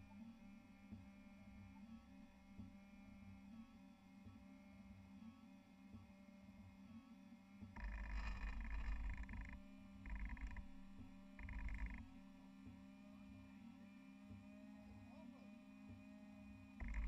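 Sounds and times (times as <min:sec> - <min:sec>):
steady low hum: 0:07.8 - 0:12.6.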